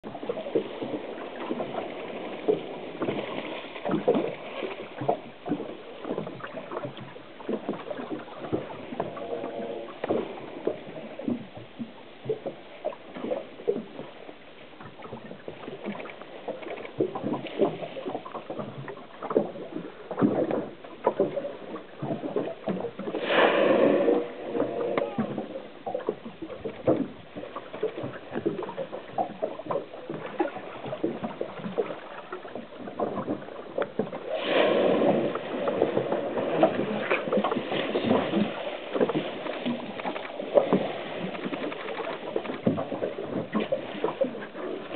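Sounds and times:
waves lapping against boat hull: 0.0 - 44.9
whale blowing: 23.0 - 26.2, 34.2 - 37.3.

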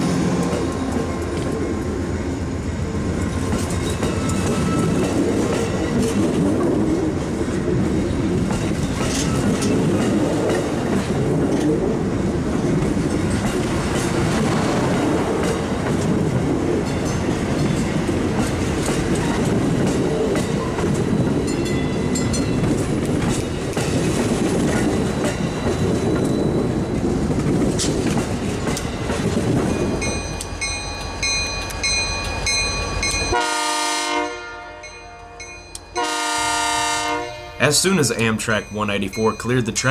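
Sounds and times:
train wheels rumbling on rail: 0.0 - 39.9
diesel locomotive horn: 33.3 - 37.8.

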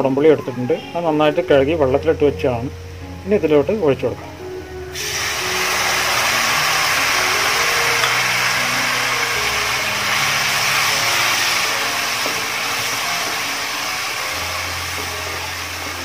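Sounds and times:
liquid sizzling in hot oil: 4.9 - 16.0.

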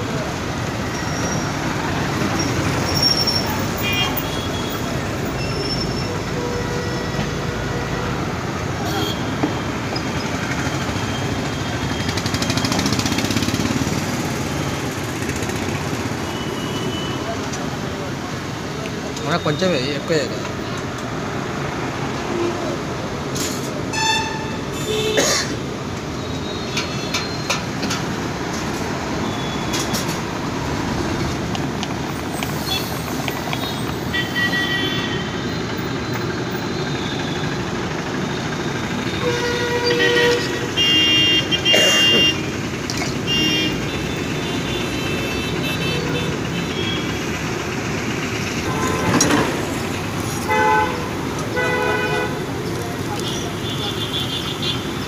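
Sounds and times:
street traffic noise: 0.0 - 55.0
vehicle horns honking: 2.4 - 9.7, 23.9 - 25.3, 33.6 - 35.6, 39.0 - 47.3, 48.6 - 55.0.

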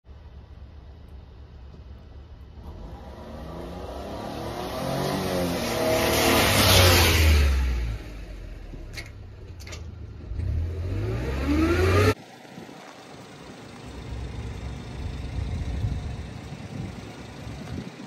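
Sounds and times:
engine revving: 2.6 - 8.5, 10.2 - 12.2.

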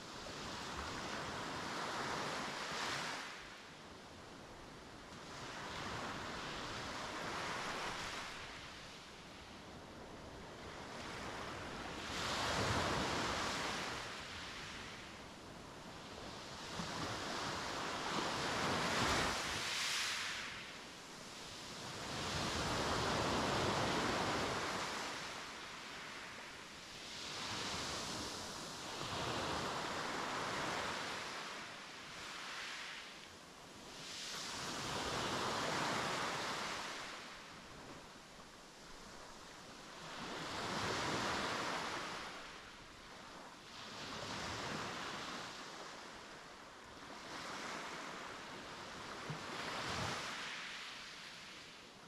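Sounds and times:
sea waves breaking on beach: 16.2 - 33.1.

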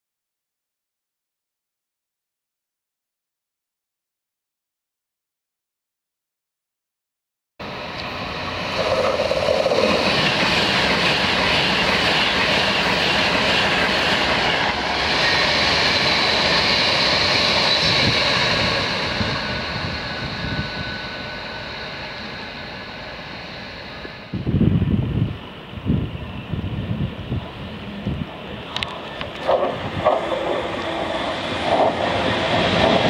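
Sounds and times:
electric train passing at speed: 7.6 - 33.0.

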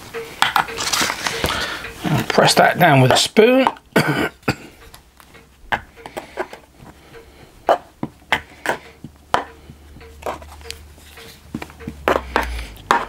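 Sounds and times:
metal spoon tapping sand: 5.8 - 13.0.

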